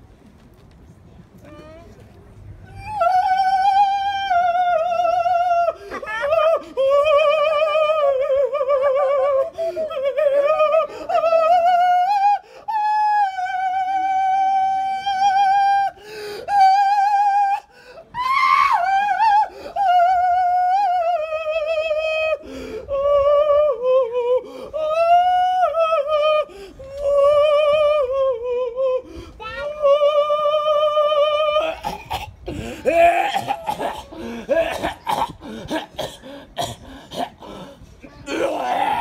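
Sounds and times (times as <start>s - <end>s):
man singing falsetto: 2.7s - 31.9s.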